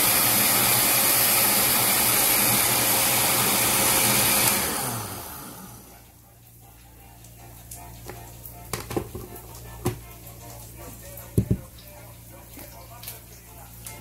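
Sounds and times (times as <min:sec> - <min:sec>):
blender running: 0:00.0 - 0:06.1.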